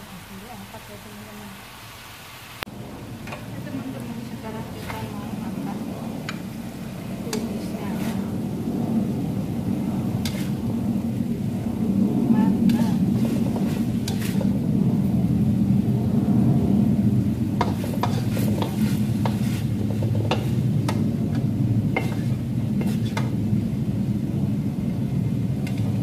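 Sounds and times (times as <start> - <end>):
steady low hum: 2.6 - 26.0
spatula scraping a wok: 4.3 - 8.4, 9.7 - 10.8, 12.4 - 14.6, 17.6 - 21.1, 21.9 - 23.4.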